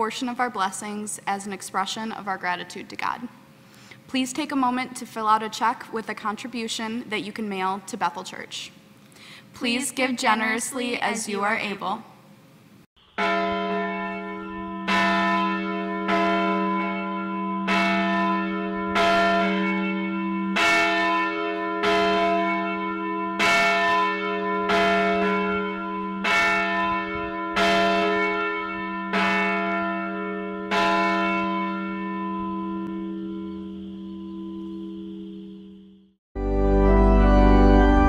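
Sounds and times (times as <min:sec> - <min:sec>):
church bell tolling: 0:13.0 - 0:38.0.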